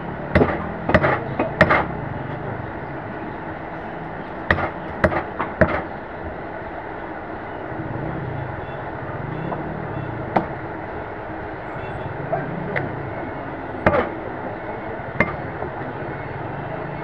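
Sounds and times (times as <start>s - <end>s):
meat cleaver chopping on wood: 0.4s - 1.9s
low rumble: 6.2s - 17.0s.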